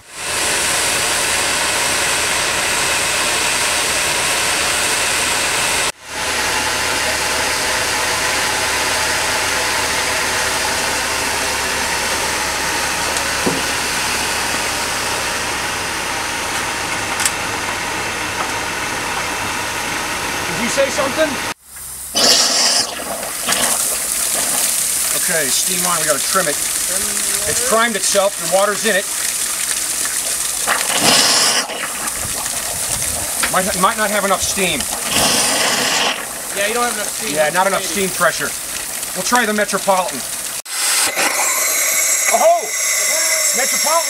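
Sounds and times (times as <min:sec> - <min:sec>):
steam hissing: 0:20.5 - 0:44.0.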